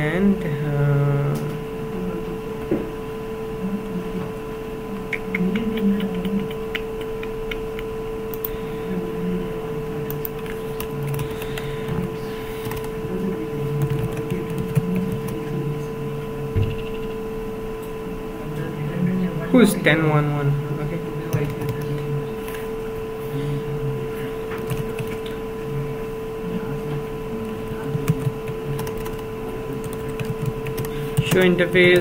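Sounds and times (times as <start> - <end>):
steady electrical hum: 0.0 - 32.0
keyboard typing clicks: 5.0 - 8.6, 10.1 - 12.9, 13.8 - 15.4, 24.6 - 25.4, 29.8 - 32.0.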